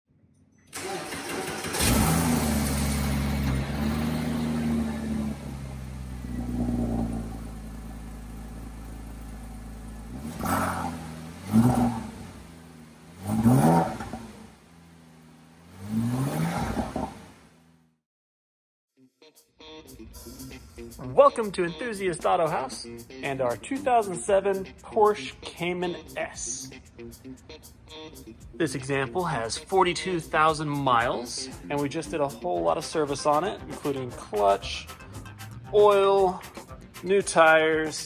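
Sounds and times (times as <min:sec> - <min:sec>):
car engine starting and idling: 0:00.7 - 0:18.0, 0:33.4 - 0:36.9
engine revving: 0:00.7 - 0:18.0, 0:33.7 - 0:36.7.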